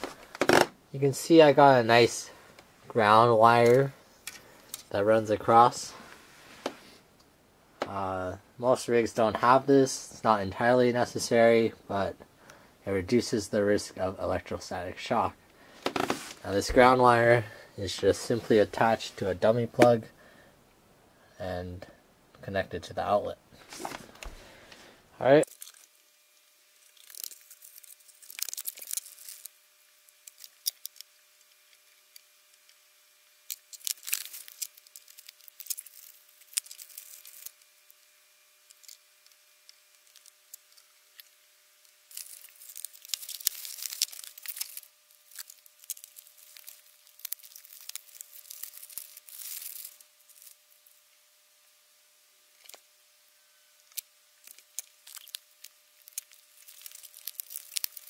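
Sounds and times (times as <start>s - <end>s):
plastic packaging crinkling and tearing: 0.0s - 0.7s, 25.4s - 51.0s, 52.5s - 52.8s, 53.8s - 58.0s.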